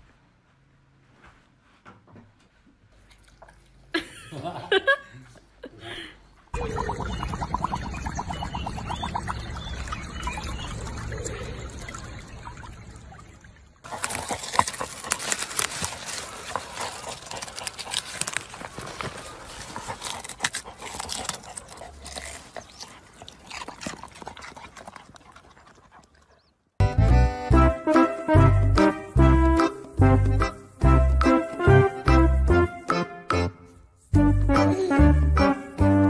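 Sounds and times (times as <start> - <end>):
dog lapping water: 6.6 - 26.5
dog digging in soil: 13.9 - 26.2.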